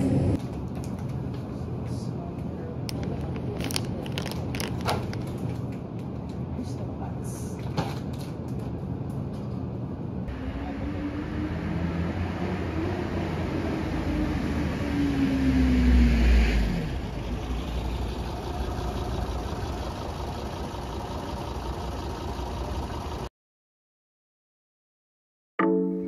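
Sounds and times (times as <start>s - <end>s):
rumble of traffic: 0.0s - 23.3s
vehicle passing close: 10.3s - 19.4s.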